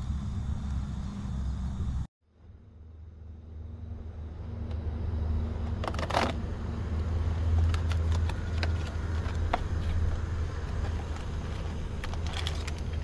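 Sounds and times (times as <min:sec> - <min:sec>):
steady low hum: 0:00.0 - 0:13.0
paper package crinkling: 0:07.5 - 0:13.0.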